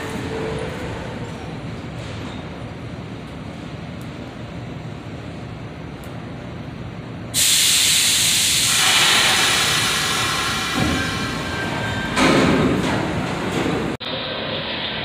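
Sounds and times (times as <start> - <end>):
train pulling out: 7.3 - 15.0
train air brakes hissing: 7.4 - 12.2.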